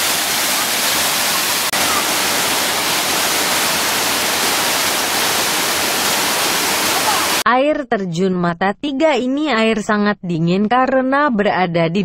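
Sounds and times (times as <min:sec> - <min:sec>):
waterfall rushing: 0:00.0 - 0:07.4.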